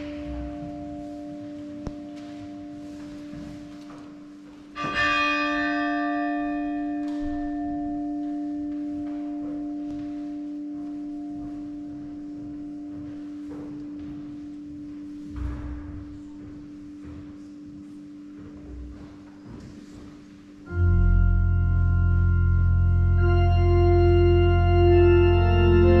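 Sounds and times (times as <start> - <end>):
bell ringing: 0.0 - 12.2
steady low hum: 0.0 - 26.0.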